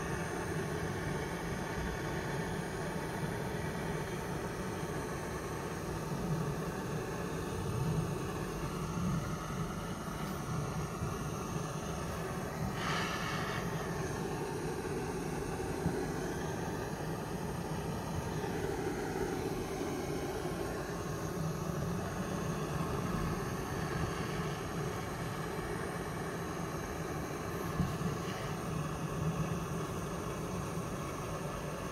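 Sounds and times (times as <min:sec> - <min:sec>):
butane torch hissing: 0:00.0 - 0:31.9.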